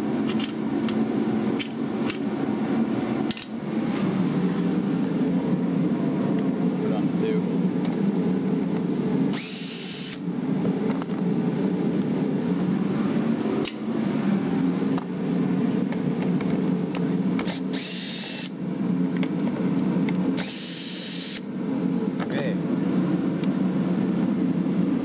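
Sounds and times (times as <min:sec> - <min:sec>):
steady low hum: 0:00.0 - 0:25.0
cordless drill motor whining: 0:09.3 - 0:10.2, 0:17.4 - 0:18.6, 0:20.4 - 0:21.5.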